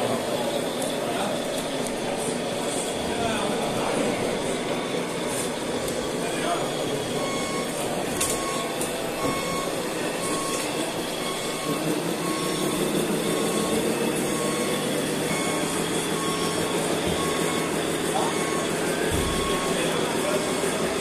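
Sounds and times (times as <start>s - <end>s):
reversing alarm beeping: 0.0s - 21.0s
steady machine drone: 0.0s - 21.0s.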